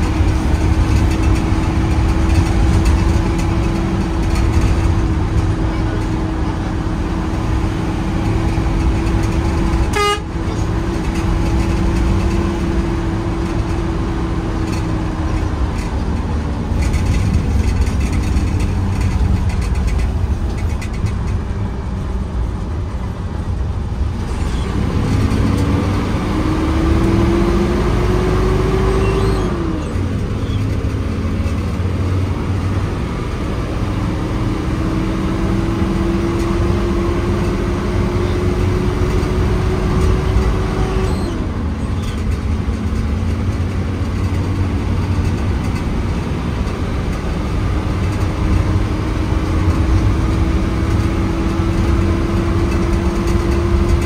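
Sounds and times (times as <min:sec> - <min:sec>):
bus diesel engine droning: 0:00.0 - 0:54.0
road rumble: 0:00.0 - 0:54.0
horn toot: 0:09.9 - 0:10.4.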